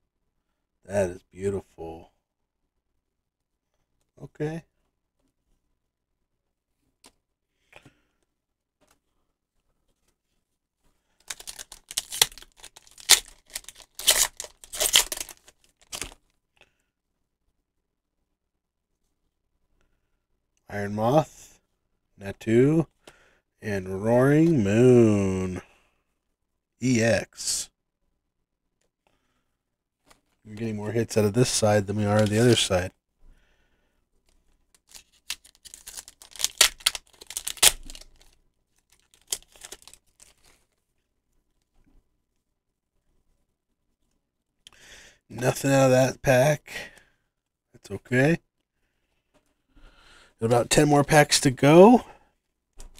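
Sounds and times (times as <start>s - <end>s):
foil wrapper tearing and crinkling: 11.2s - 16.2s, 34.8s - 40.6s.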